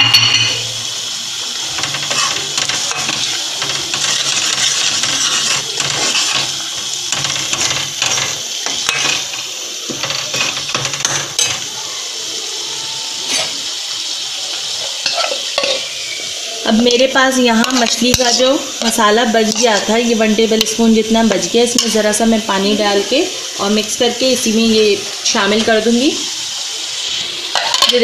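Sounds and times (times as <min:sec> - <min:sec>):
food sizzling in a pot: 0:00.0 - 0:28.0
ladle scraping and clinking pot: 0:01.7 - 0:11.7, 0:15.0 - 0:15.9, 0:27.5 - 0:28.0.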